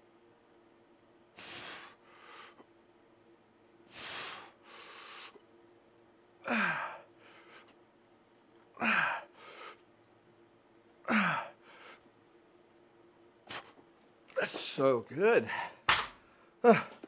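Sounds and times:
faint steady hum: 0.0s - 17.0s
man inhaling: 1.4s - 2.6s, 3.9s - 5.4s
man exhaling with grunts: 6.4s - 7.0s, 16.6s - 17.0s.

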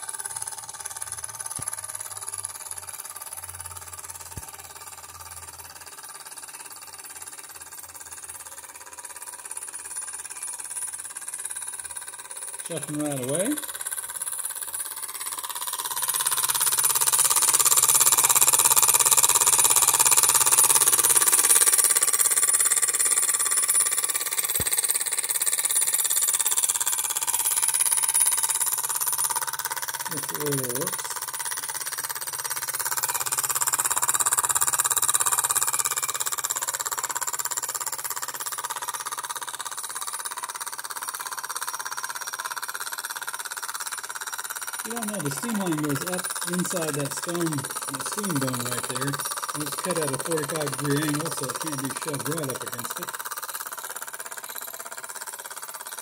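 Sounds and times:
model steam engine chugging: 0.0s - 56.0s
gear drive ticking: 12.7s - 56.0s.

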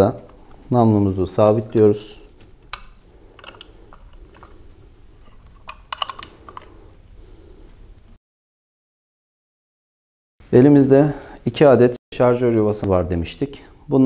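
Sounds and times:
metal clicks and scrapes: 1.7s - 6.8s.

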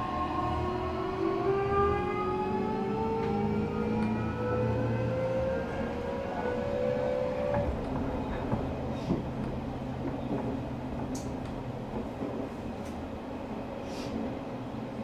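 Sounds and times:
wheel-on-rail rumble: 3.2s - 15.0s.

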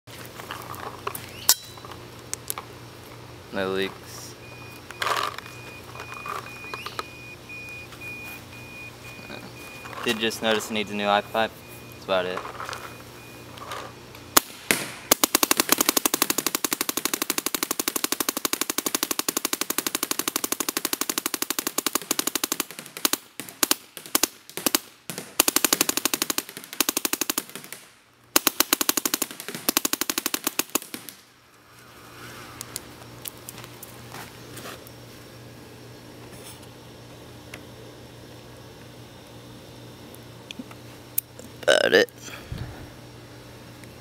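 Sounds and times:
paintball marker rapid firing: 14.4s - 31.2s.

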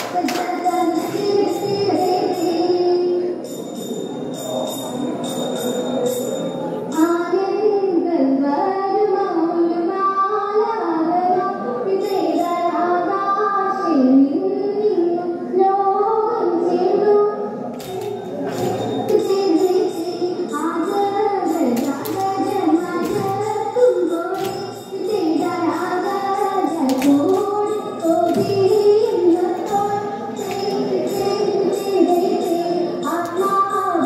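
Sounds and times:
sharp rhythmic beats: 0.0s - 2.6s, 17.8s - 34.0s
women singing: 0.0s - 3.3s, 7.0s - 34.0s.

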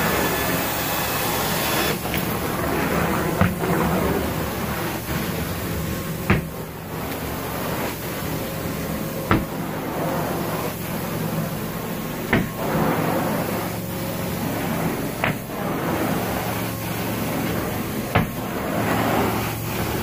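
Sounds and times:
extraction machine humming: 0.0s - 20.0s
sharp knocks: 3.4s - 3.8s, 6.3s - 6.7s, 9.3s - 9.6s, 12.3s - 12.6s, 15.2s - 15.5s, 18.1s - 18.4s.

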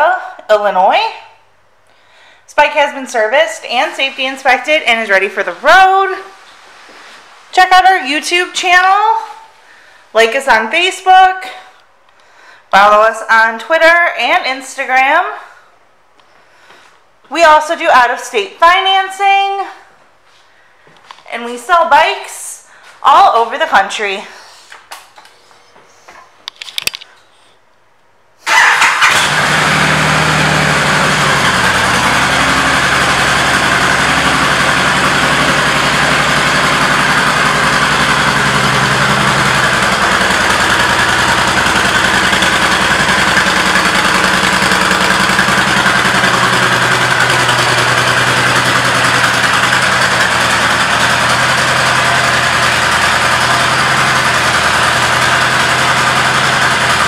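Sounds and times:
motorcycle engine starting and idling: 28.4s - 57.0s.

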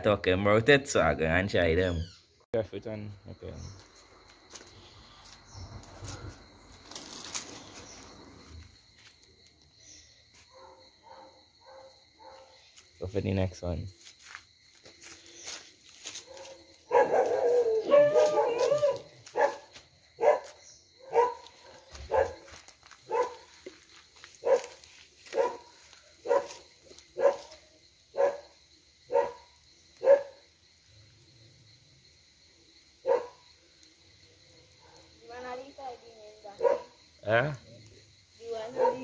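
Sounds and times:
dog barking: 10.5s - 12.6s, 16.2s - 22.5s, 23.1s - 23.5s, 24.4s - 30.4s, 33.0s - 33.4s, 36.6s - 37.0s, 38.7s - 39.0s.

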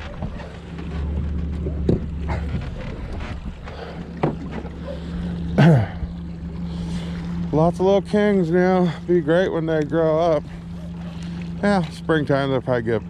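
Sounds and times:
gear clicking and knocking in boat: 0.0s - 5.3s
outboard motor running: 0.0s - 13.0s.

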